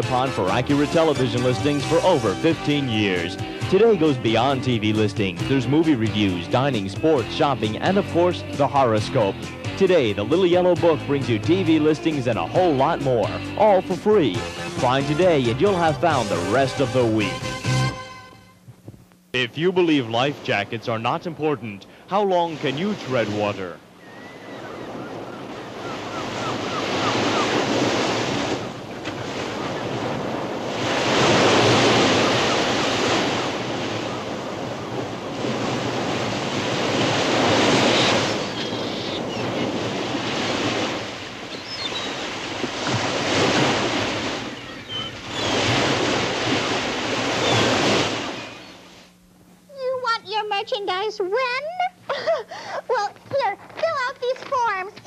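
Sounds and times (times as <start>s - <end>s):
sea waves: 0.0s - 18.3s, 19.4s - 49.2s
wind: 18.7s - 50.4s, 51.9s - 55.0s.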